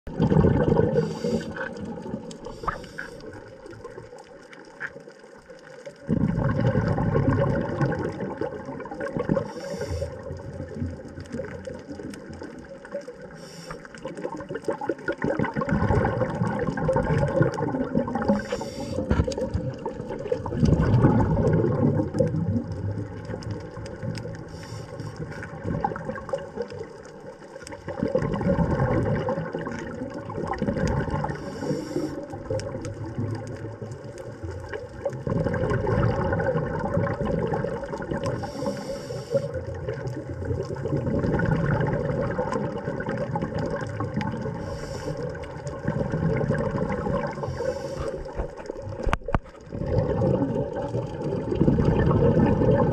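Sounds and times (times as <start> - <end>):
underwater sloshing and gurgling: 0.0 - 52.9
short hissing bursts: 1.0 - 1.6, 2.5 - 3.2, 9.5 - 10.2, 13.4 - 13.9, 18.4 - 19.1, 38.4 - 39.5, 47.4 - 48.2.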